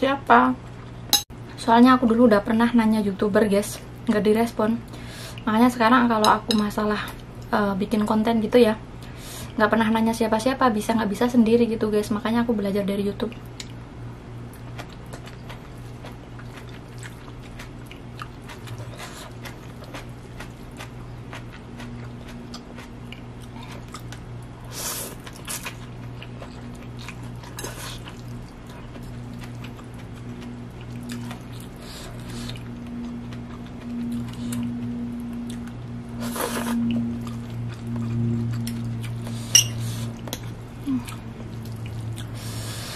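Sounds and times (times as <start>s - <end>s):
low electric hum: 0.0s - 42.9s
person chewing: 14.5s - 42.8s
fork scraping on plate: 39.4s - 40.0s.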